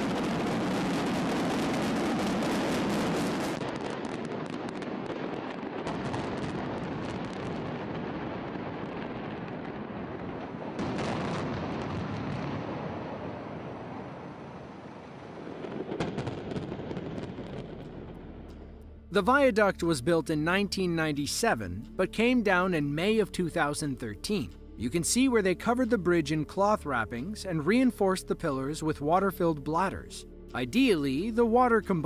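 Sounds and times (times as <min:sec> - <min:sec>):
low rumble: 0:16.8 - 0:19.2.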